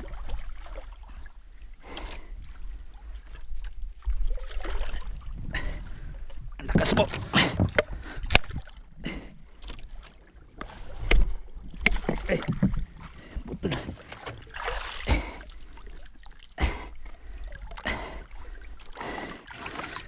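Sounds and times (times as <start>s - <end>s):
water splashing: 0.0s - 20.0s.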